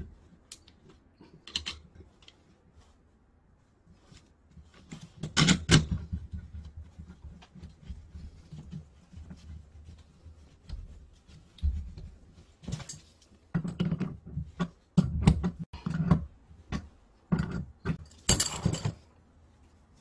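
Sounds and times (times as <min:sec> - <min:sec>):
close knocks and scuffs: 0:05.9 - 0:13.2.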